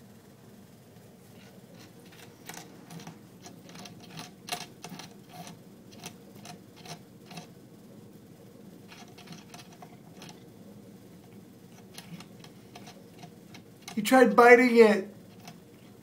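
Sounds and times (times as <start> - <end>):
cat licking metal spout clicks: 1.8 - 7.5, 11.8 - 14.0, 15.3 - 15.6.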